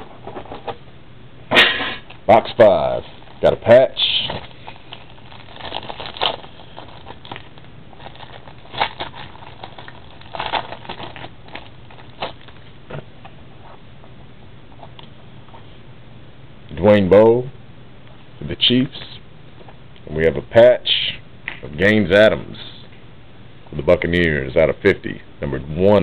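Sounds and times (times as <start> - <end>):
plastic wrapper crinkling: 2.7 - 12.7.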